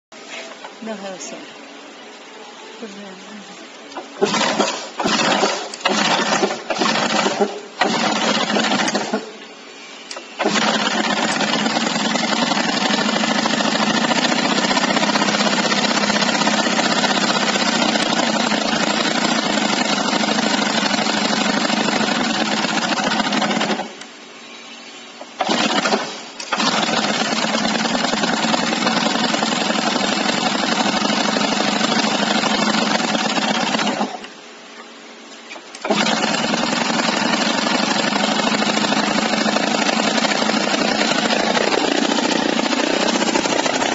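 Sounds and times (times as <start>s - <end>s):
petrol engine running: 2.9s - 9.4s, 10.1s - 24.0s, 35.7s - 43.9s
drill hammering into concrete: 4.2s - 9.4s, 10.1s - 24.0s, 25.4s - 34.3s, 35.8s - 43.9s.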